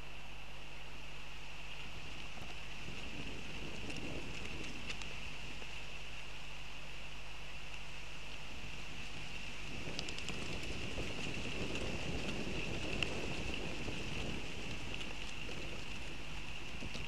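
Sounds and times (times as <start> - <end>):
wind rustling foliage: 0.0 - 17.0
faint ticks: 1.7 - 5.8, 7.6 - 8.4, 9.2 - 17.0.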